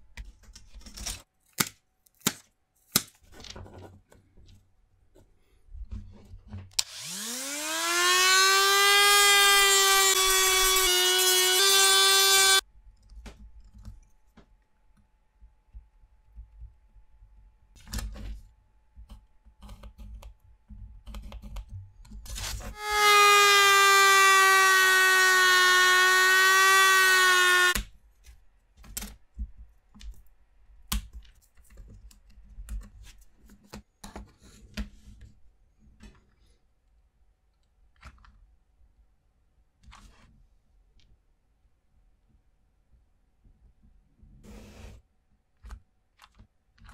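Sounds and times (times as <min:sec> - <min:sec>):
cut-off disc cutting wood: 0:06.8 - 0:12.6, 0:22.7 - 0:27.8
rotary tool whining: 0:06.8 - 0:12.6, 0:22.7 - 0:27.8.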